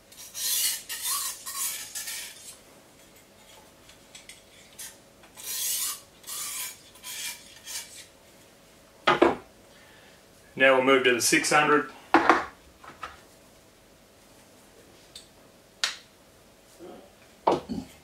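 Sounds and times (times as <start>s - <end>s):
sharpening stone rasping on knife: 0.1s - 2.6s, 4.2s - 8.1s.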